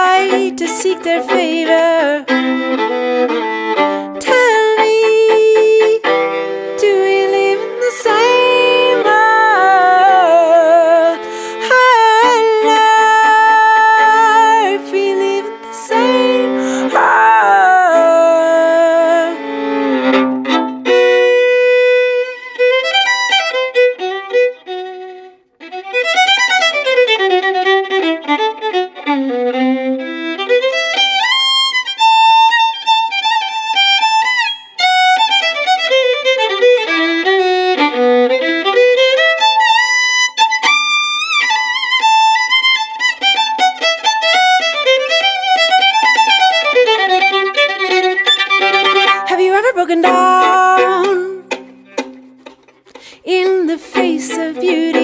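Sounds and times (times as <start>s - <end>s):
bowed violin solo: 0.0s - 55.0s.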